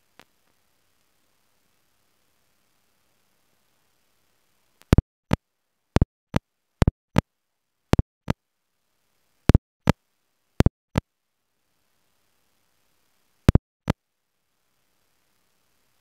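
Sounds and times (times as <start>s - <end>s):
sharp clicks: 4.8s - 5.0s.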